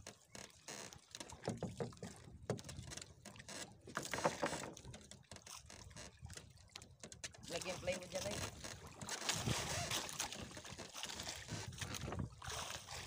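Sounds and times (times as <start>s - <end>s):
water lapping against boat hull: 0.0s - 13.0s
irregular knocks: 1.4s - 2.7s.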